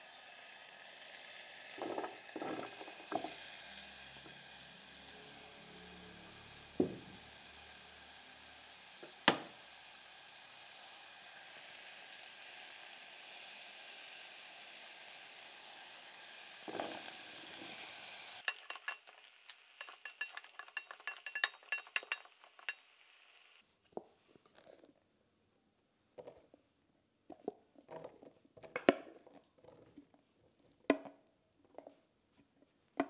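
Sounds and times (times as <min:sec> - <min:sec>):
mushrooms sizzling in a pan: 0:00.0 - 0:23.6
spoon clinking against pan: 0:18.4 - 0:22.9.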